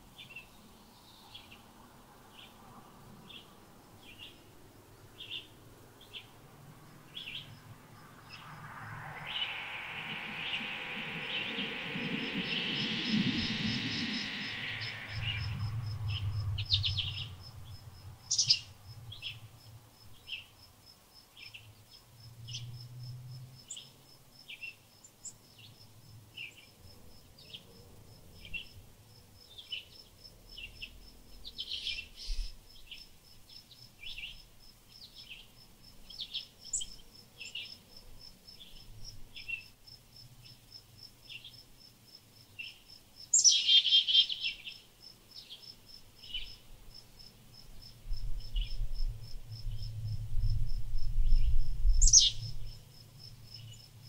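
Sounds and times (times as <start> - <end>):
small songbirds chirping: 0.0 - 28.8, 29.4 - 54.0
insect high pulsing: 6.3 - 19.4.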